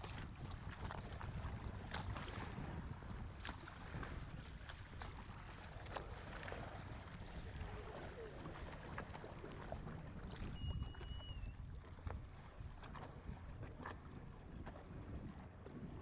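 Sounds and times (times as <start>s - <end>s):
water rushing along hull: 0.0s - 16.0s
wind buffeting microphone: 0.0s - 16.0s
thin high whistle: 10.4s - 11.6s.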